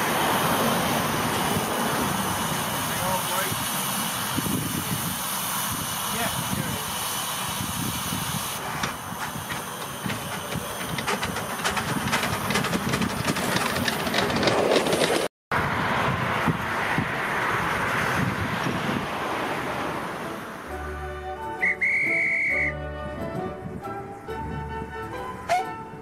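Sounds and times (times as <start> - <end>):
steam locomotive hissing: 0.0 - 15.3
clicks and knocks of locomotive: 8.6 - 15.3.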